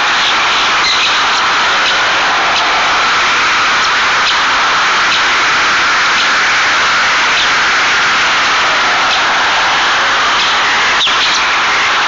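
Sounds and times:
loud rushing hiss: 0:00.0 - 0:12.0.

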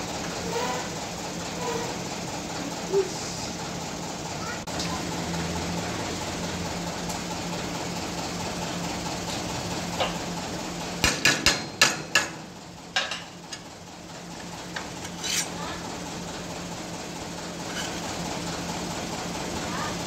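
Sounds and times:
hammer striking steel plate: 0:11.0 - 0:13.3.

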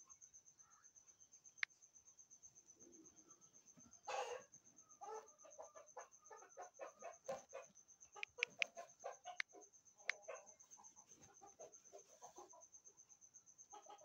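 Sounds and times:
chickens clucking: 0:04.0 - 0:12.7, 0:13.7 - 0:14.0.

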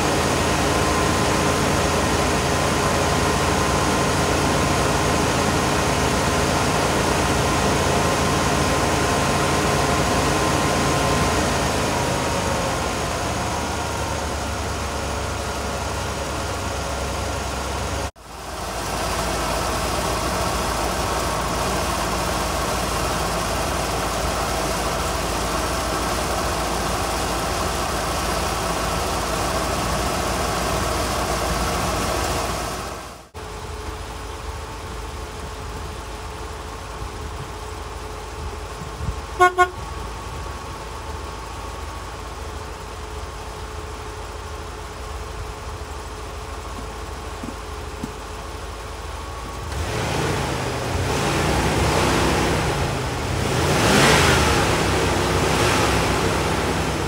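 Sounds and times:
truck engine idling: 0:00.0 - 0:57.0
horn toots: 0:39.4 - 0:39.9.

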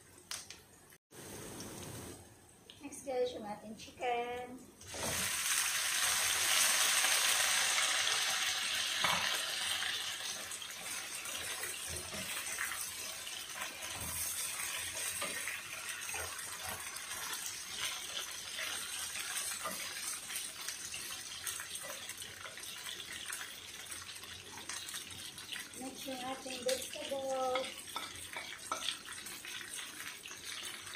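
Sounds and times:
chicken sizzling in a pan: 0:04.8 - 0:30.9.

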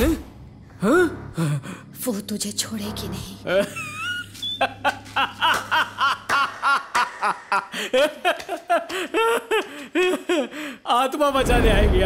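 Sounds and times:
man laughing tauntingly: 0:03.5 - 0:10.8.

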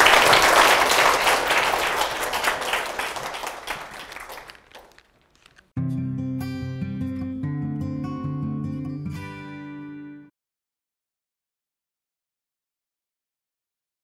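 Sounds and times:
audience applause: 0:00.0 - 0:05.6
plucked guitar music: 0:05.8 - 0:10.3.

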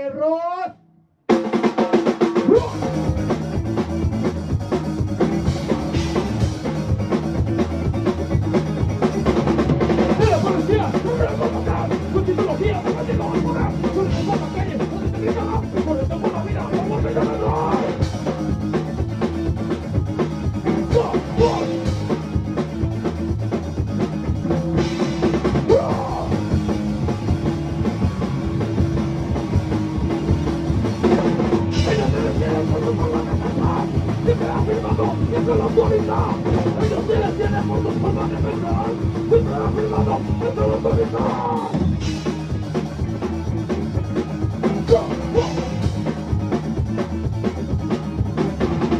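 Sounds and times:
amplified electric guitar: 0:00.8 - 0:48.9
drum kit: 0:01.3 - 0:48.9.

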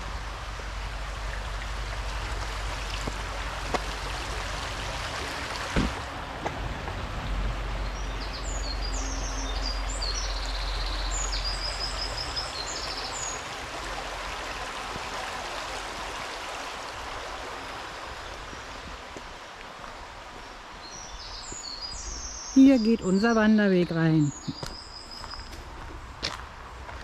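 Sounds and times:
stream babbling over stones: 0:00.0 - 0:21.5
small bird singing: 0:07.8 - 0:13.4, 0:20.8 - 0:25.5.

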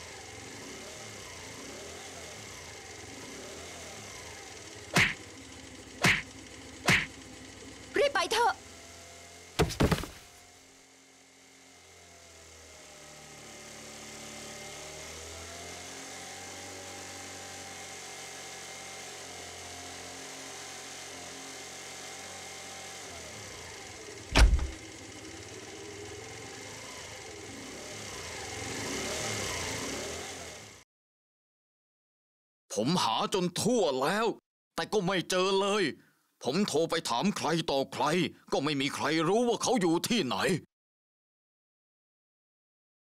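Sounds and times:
motor scooter engine: 0:00.0 - 0:30.8
sharp hit: 0:05.0 - 0:05.2, 0:06.0 - 0:06.2, 0:06.9 - 0:07.1.

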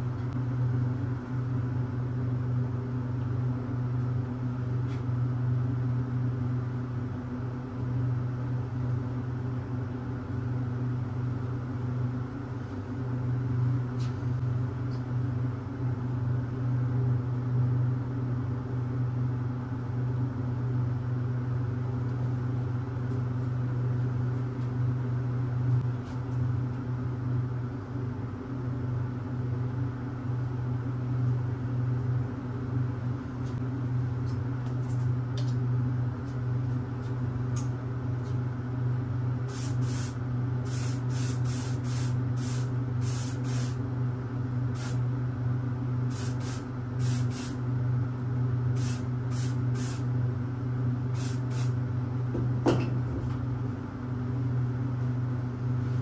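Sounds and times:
low machine hum: 0:00.0 - 0:56.0
paint spray gun hissing: 0:39.5 - 0:43.8, 0:44.8 - 0:45.0, 0:46.1 - 0:47.6, 0:48.8 - 0:50.0, 0:51.2 - 0:51.8.

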